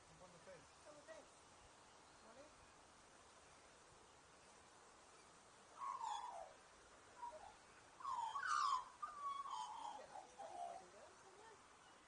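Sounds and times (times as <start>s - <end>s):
songbird warbling calls: 5.1s - 12.0s.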